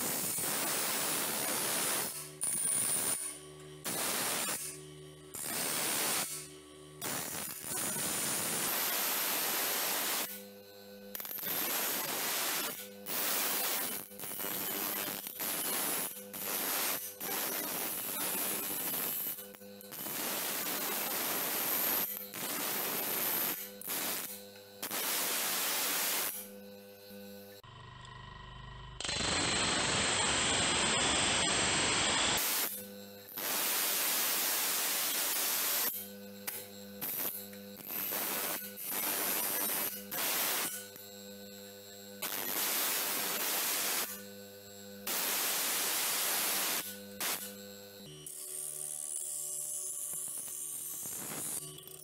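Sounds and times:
grinding hiss of blade: 0.0s - 10.4s, 11.2s - 26.6s, 29.1s - 41.0s, 42.2s - 44.3s, 45.0s - 47.6s, 48.3s - 52.0s
bench grinder motor hum: 0.0s - 34.2s, 34.8s - 43.4s, 44.0s - 45.2s, 46.3s - 52.0s
grinder wheel grinding steel: 46.8s - 52.0s.

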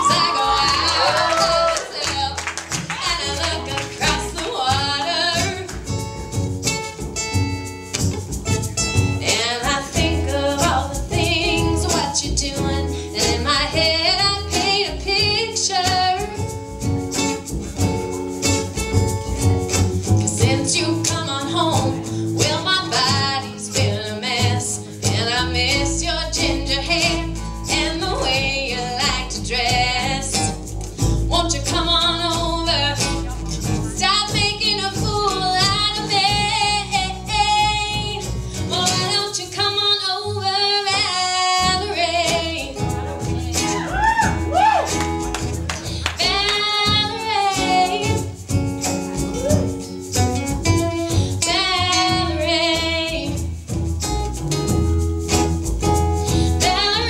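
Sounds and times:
person singing: 0.0s - 5.7s, 20.4s - 30.6s, 45.9s - 48.4s, 56.3s - 57.0s
strummed acoustic guitar: 0.0s - 57.0s
upright bass: 0.0s - 57.0s
djembe drumming: 48.4s - 49.8s.

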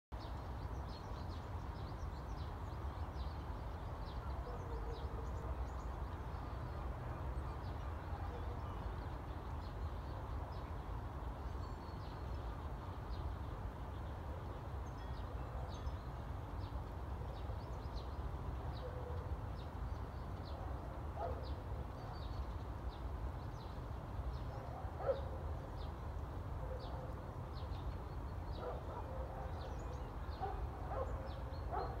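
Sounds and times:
small birds chirping: 11.4s - 32.0s.

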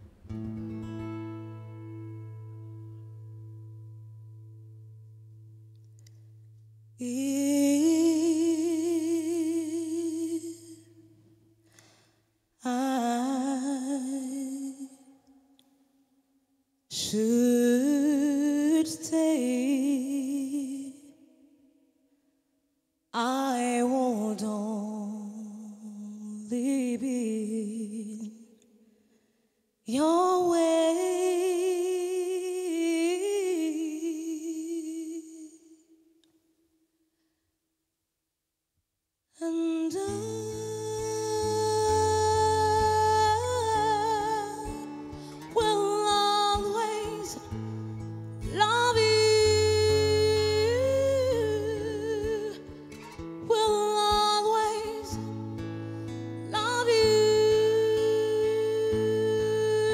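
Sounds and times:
woman singing slow phrases: 7.0s - 11.1s, 12.6s - 15.2s, 16.9s - 21.2s, 23.2s - 28.5s, 29.9s - 35.9s, 39.4s - 55.6s, 56.4s - 59.9s.

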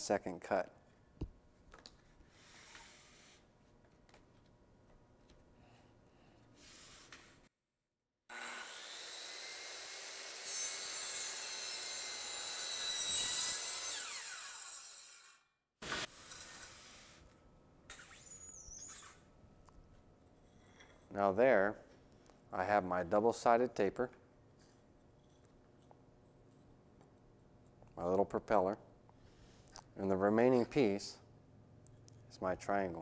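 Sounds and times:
circular saw cutting wood: 8.3s - 16.8s.

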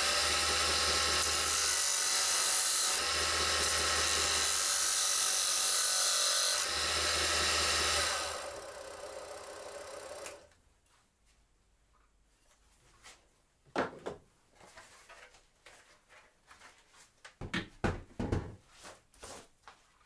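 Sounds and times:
knocks and clunks of handling: 13.7s - 15.4s, 17.2s - 18.7s.

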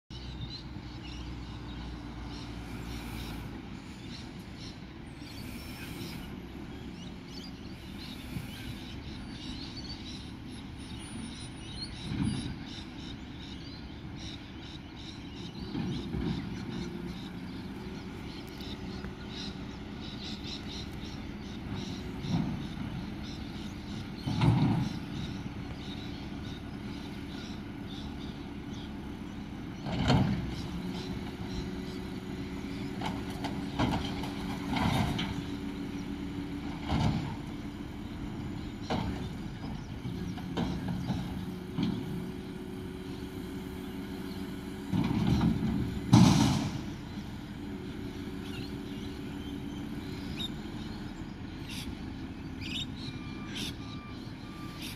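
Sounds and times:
distant garbage truck engine: 0.1s - 54.9s.

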